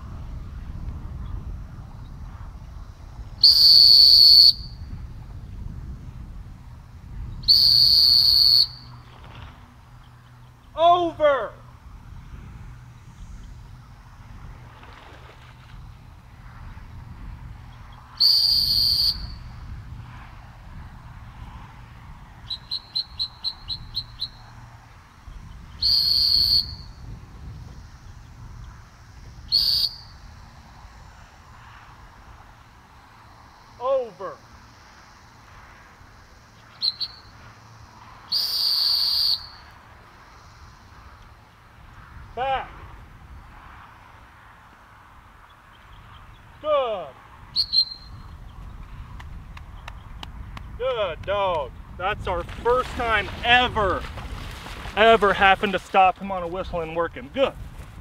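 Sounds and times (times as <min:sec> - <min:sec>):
dog training whistle blasts: 0:03.4 - 0:04.8, 0:07.4 - 0:08.9, 0:18.2 - 0:19.4, 0:22.5 - 0:24.4, 0:25.8 - 0:27.0, 0:29.5 - 0:30.1, 0:36.8 - 0:37.3, 0:38.3 - 0:39.8, 0:47.5 - 0:48.2.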